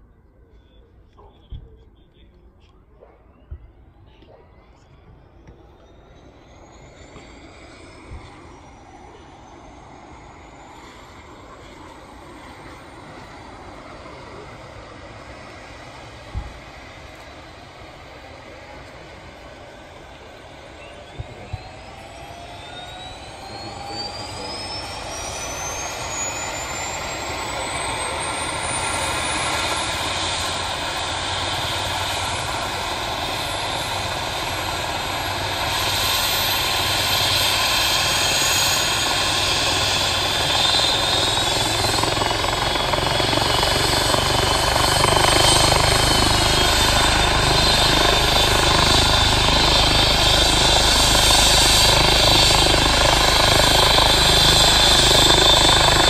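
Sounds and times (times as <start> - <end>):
helicopter turbine whine: 4.7 - 56.0
helicopter rotor spinning up: 23.7 - 56.0.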